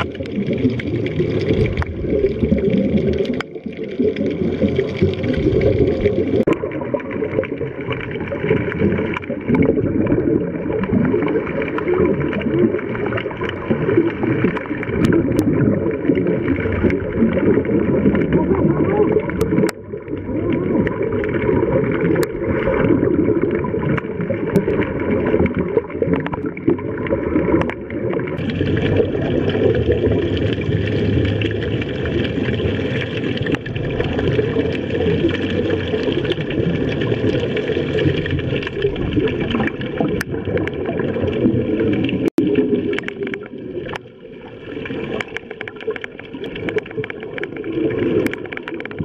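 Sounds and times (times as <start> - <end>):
underwater water rushing and gurgling: 0.0 - 49.0.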